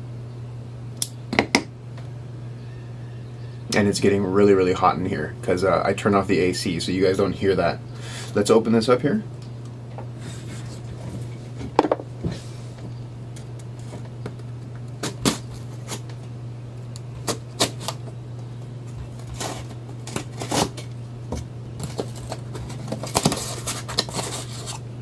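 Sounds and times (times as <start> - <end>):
steady low hum: 0.0 - 25.0
knife cutting cardboard box: 17.2 - 18.1, 19.0 - 20.9, 21.8 - 24.8.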